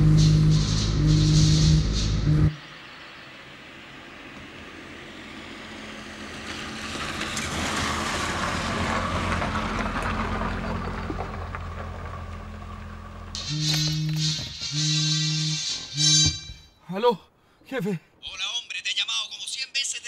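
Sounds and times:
tyres hissing on wet road: 0.0 - 10.7
car engine humming: 0.0 - 16.6.

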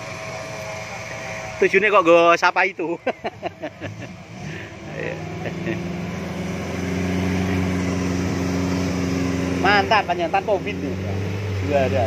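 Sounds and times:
off-road vehicle engine revving: 0.0 - 12.0.

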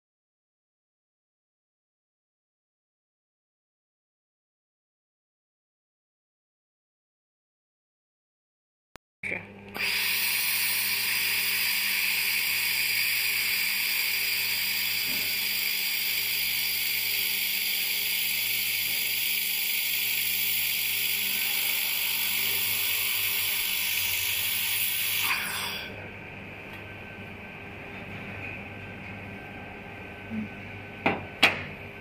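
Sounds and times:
laser welding hiss: 10.2 - 25.8.

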